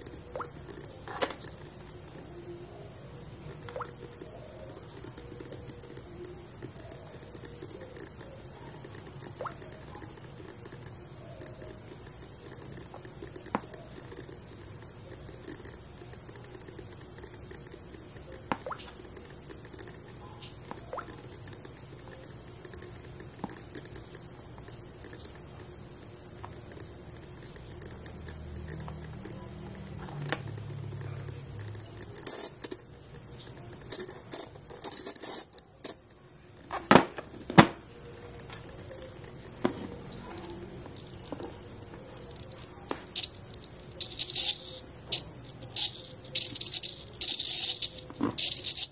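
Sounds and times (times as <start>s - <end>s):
fingertips tapping touchscreen: 0.0s - 48.9s
steady hiss: 0.0s - 48.9s.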